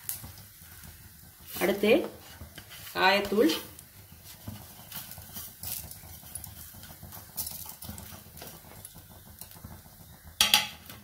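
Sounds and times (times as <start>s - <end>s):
spices crackling in oil: 0.0s - 11.0s.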